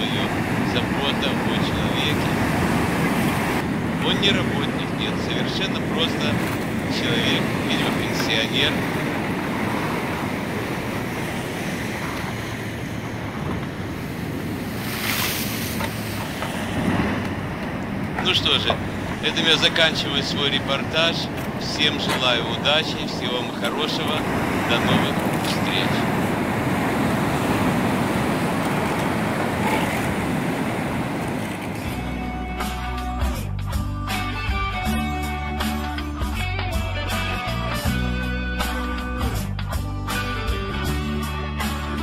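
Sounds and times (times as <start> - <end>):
wind buffeting microphone: 0.0 - 32.2
waves breaking below seawall: 0.0 - 32.8.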